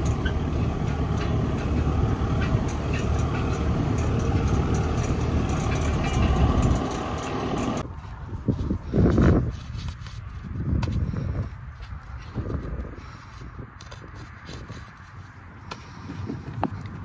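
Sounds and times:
clicks and rattles: 0.0 - 7.8
tractor engine running: 0.0 - 10.4.

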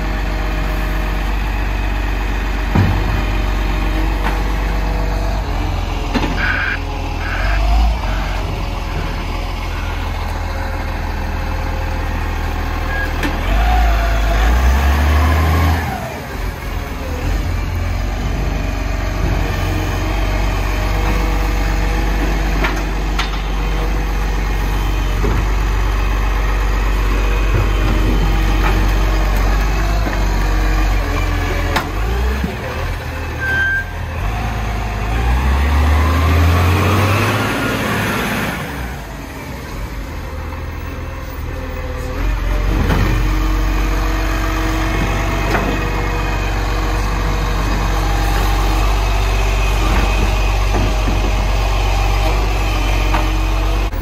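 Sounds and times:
garbage truck engine idling: 0.0 - 14.5.

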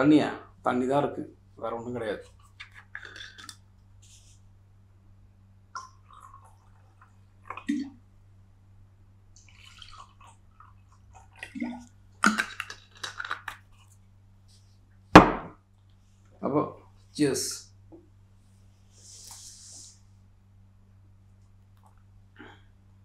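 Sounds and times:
water pouring into glasses: 5.8 - 8.0, 9.4 - 13.6.

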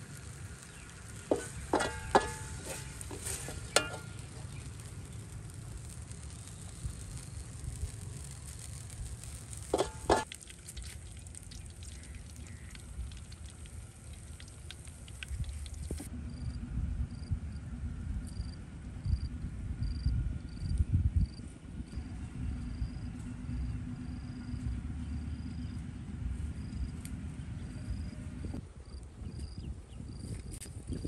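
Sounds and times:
wind rumbling on microphone: 0.0 - 31.0
faint scraping: 1.3 - 4.8
spoon clinking on metal tray: 3.8 - 4.1.

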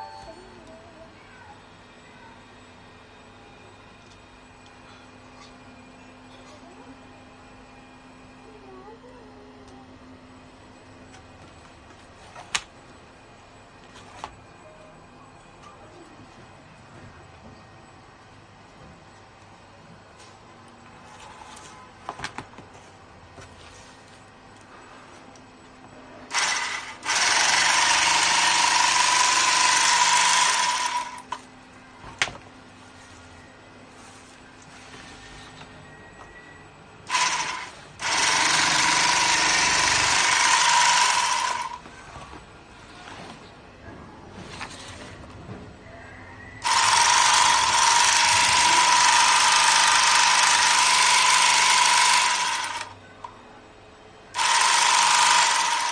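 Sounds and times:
bag-closing sewing machine whine: 26.3 - 31.3, 37.1 - 42.2.

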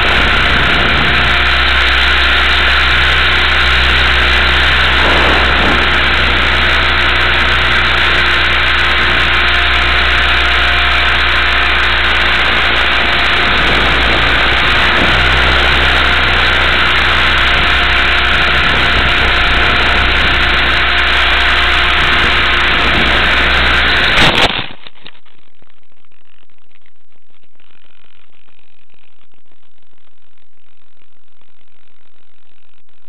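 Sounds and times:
electric helicopter rotor hiss: 0.0 - 24.2.

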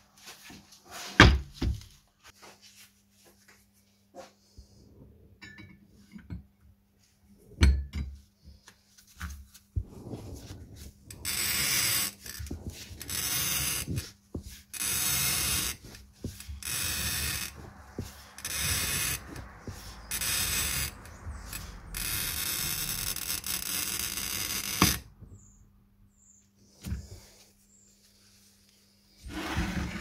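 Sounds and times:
glass bottle scraping on cutting wheel: 9.8 - 25.1, 29.3 - 30.0.

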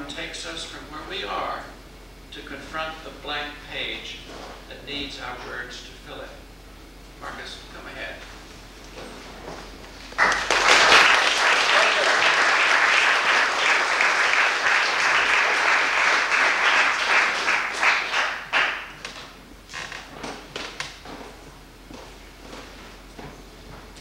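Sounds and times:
audience applauding: 10.2 - 19.0.

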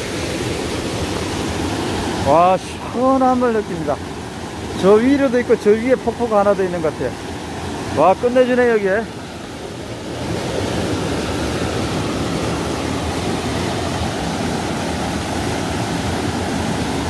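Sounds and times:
mountain stream rushing: 0.0 - 17.0.

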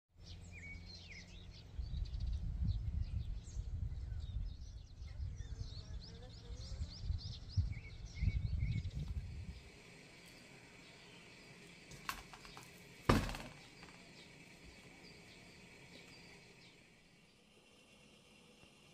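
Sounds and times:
small birds chirping: 0.2 - 18.9
wind buffeting microphone: 1.1 - 10.2.

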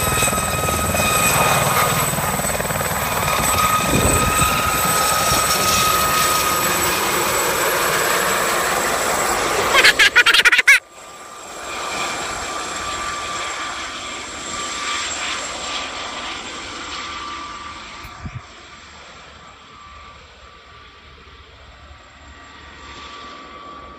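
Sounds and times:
rushing rotor noise: 0.0 - 10.8
helicopter turbine whine: 0.0 - 23.9.

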